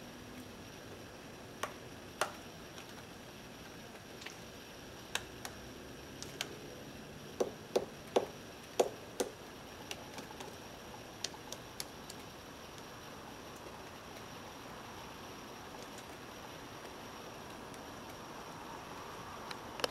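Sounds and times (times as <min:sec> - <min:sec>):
woodpecker knocking on tree: 0:07.4 - 0:10.6.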